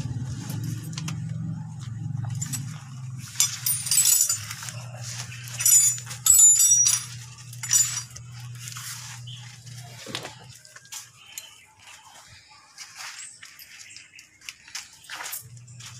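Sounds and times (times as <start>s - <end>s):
small metal parts clinking: 2.2s - 8.8s.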